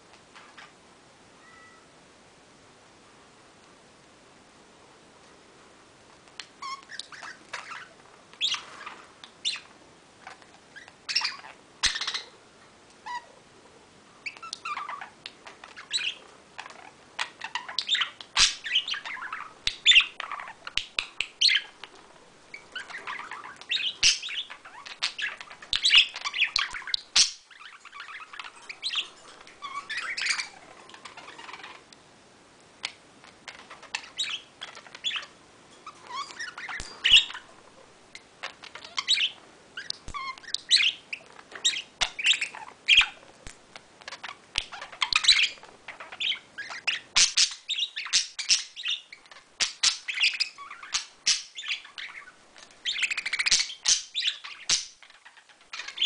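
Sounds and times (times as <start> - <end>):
budgerigars warbling and chirping: 6.4 - 12.4, 13.0 - 13.4, 14.2 - 31.9, 32.8 - 56.0.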